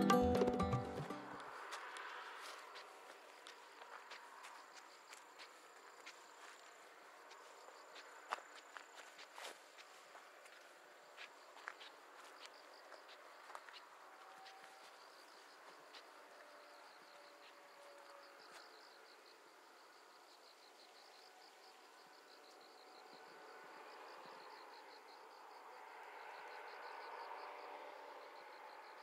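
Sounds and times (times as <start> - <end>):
soft footsteps: 1.4 - 16.5
cricket chirping: 1.4 - 29.0.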